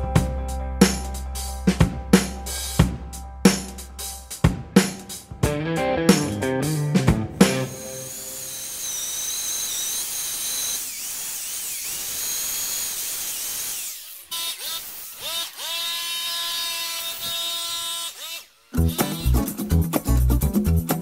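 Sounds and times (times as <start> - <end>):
wire wheel grinder whining: 7.6 - 19.4.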